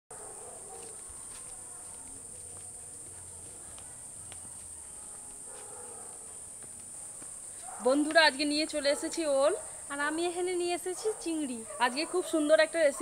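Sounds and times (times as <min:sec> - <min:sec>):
high-pitched insect chorus: 0:02.2 - 0:13.0.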